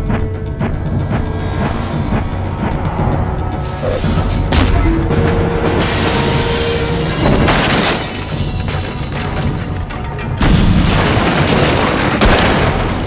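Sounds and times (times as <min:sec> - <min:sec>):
dramatic music with booming hits: 0:00.0 - 0:13.0
table breaking crash: 0:05.8 - 0:09.4.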